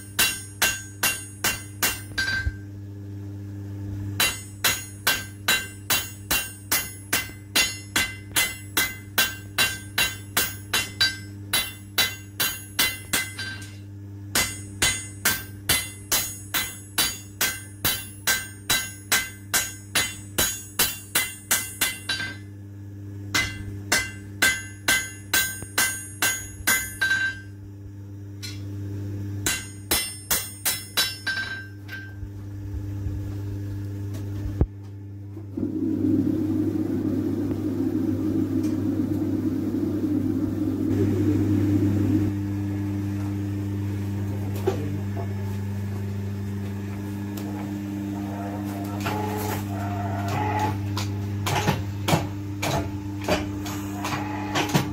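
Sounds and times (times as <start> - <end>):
hammer striking metal on anvil: 0.0 - 2.6, 4.2 - 22.5, 23.3 - 27.5, 29.4 - 32.2
low hum: 31.4 - 51.4.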